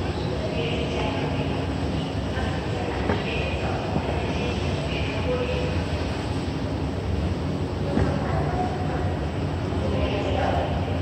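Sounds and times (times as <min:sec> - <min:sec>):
low mechanical rumble: 0:00.0 - 0:11.0.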